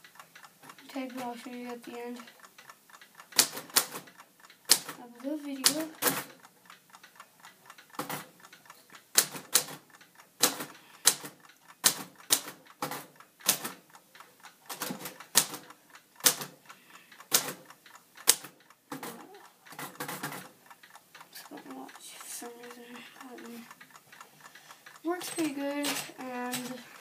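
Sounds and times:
typewriter keys clacking: 0:04.7 - 0:06.4, 0:10.4 - 0:13.8, 0:14.7 - 0:16.6, 0:17.3 - 0:20.5.

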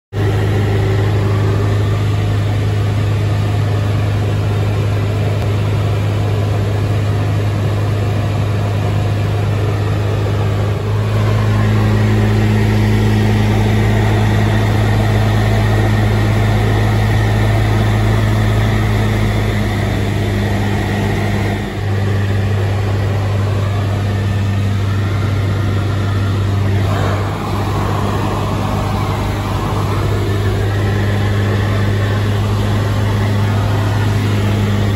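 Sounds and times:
light aircraft engine droning: 0:00.2 - 0:34.9
airflow noise: 0:09.8 - 0:34.9.

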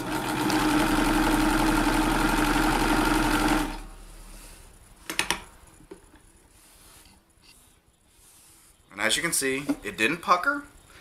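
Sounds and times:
sewing machine stitching: 0:00.0 - 0:03.9.

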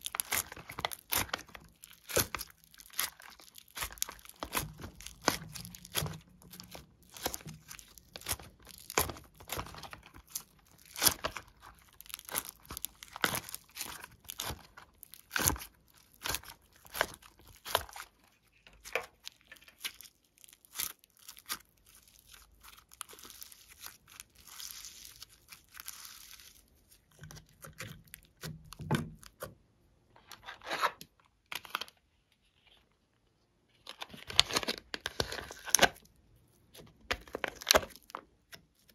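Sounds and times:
crunchy slime crackling and popping: 0:00.0 - 0:29.6, 0:33.9 - 0:38.9.

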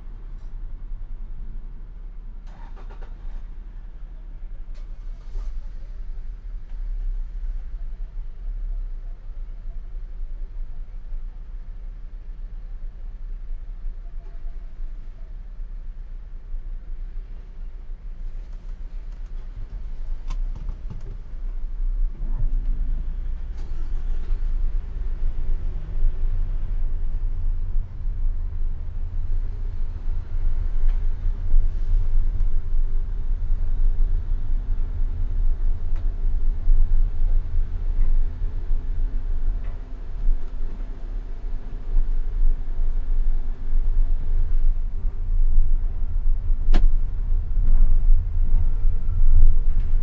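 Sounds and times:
car engine and tyres rumbling: 0:00.0 - 0:50.0.

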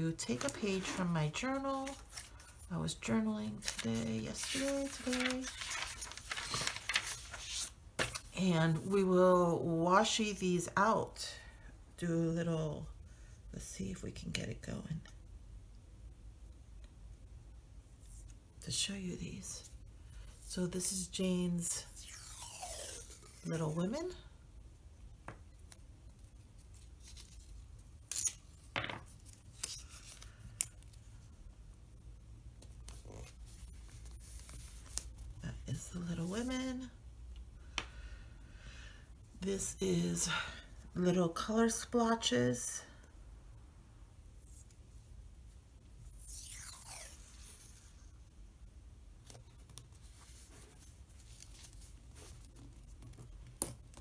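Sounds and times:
low steady hum: 0:00.0 - 0:54.0
soft rubbing of tape: 0:00.2 - 0:02.7, 0:03.6 - 0:08.3, 0:25.5 - 0:31.5, 0:32.6 - 0:35.5, 0:44.3 - 0:45.1, 0:46.0 - 0:48.4, 0:49.2 - 0:54.0.

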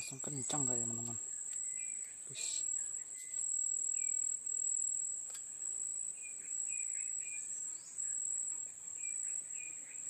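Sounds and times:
high-pitched insect drone: 0:00.0 - 0:05.1
short insect chirps: 0:00.0 - 0:10.0.

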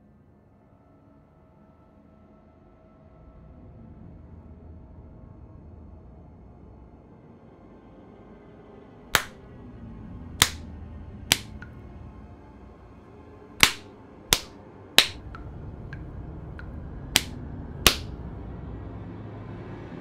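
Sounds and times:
low music drone: 0:00.5 - 0:20.0
hand slapping a face: 0:09.2 - 0:09.4, 0:10.4 - 0:10.6, 0:11.3 - 0:11.7, 0:13.6 - 0:15.4, 0:17.2 - 0:18.1.

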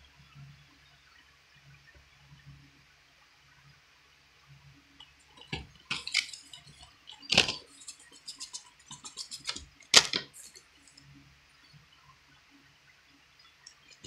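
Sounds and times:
plastic case clicks and rustles: 0:05.3 - 0:10.6.

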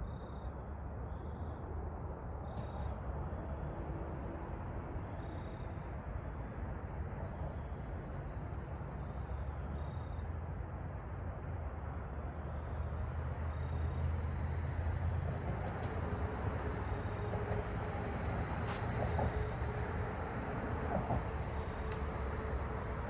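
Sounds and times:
road traffic rumble: 0:00.0 - 0:23.0
vehicle passing: 0:12.6 - 0:23.0.

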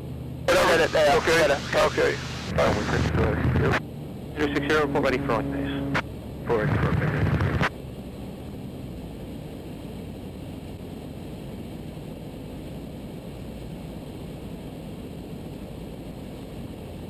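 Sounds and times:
aircraft engine and propeller droning: 0:00.0 - 0:17.0.

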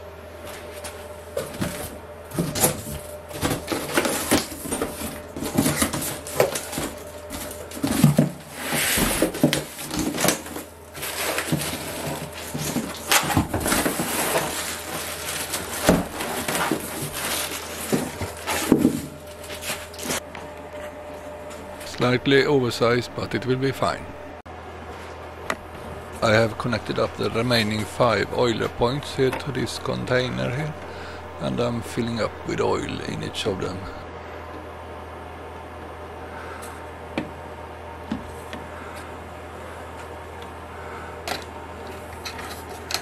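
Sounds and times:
cardboard rustling and scraping: 0:00.5 - 0:21.1
plastic wrap crinkling: 0:10.4 - 0:20.2.

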